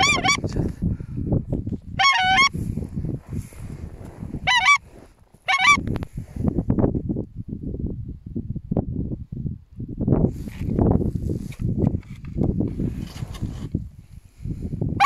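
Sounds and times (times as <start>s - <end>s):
geese honking: 0.0s - 0.4s, 2.0s - 2.5s, 4.4s - 4.9s, 5.5s - 5.9s
constant low rumble: 0.0s - 15.0s.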